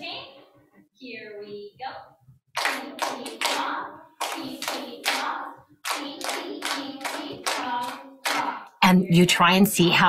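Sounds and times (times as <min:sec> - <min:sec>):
children clapping rhythms: 0:02.5 - 0:08.8.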